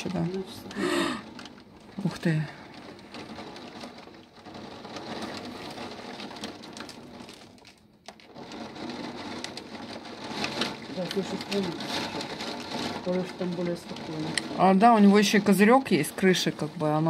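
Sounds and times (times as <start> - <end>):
heavy rain pouring: 0.0 - 17.0
raindrops ticking on surfaces: 0.0 - 17.0.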